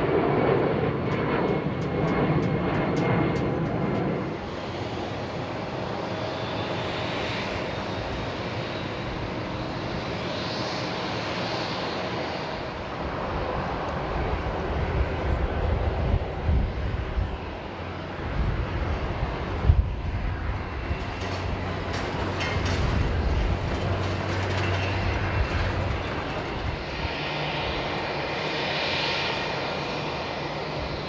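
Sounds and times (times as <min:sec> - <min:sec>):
jet engines running: 0:00.0 - 0:31.0.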